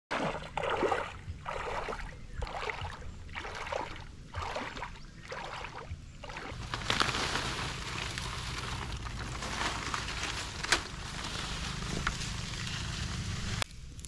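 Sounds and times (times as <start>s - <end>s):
water splashing rhythmically: 0.1s - 9.3s.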